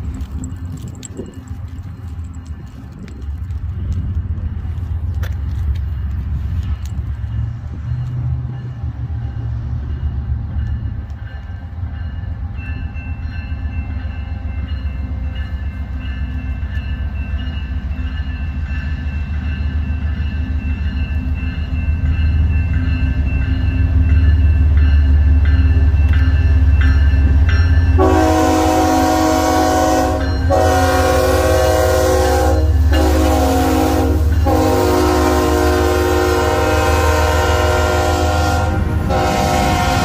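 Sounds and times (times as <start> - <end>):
diesel locomotive rumbling: 0.0 - 40.0.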